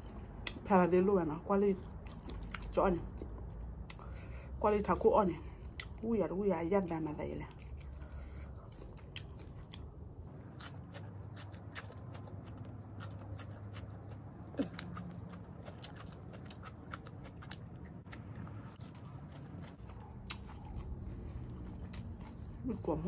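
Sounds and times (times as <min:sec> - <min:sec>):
chewing: 0:01.8 - 0:06.1, 0:06.7 - 0:23.0
bite into food: 0:09.0 - 0:22.6.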